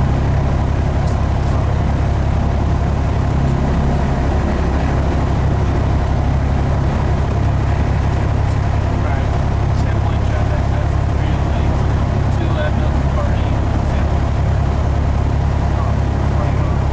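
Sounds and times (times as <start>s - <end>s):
aircraft engine drone in cabin: 0.0s - 16.9s.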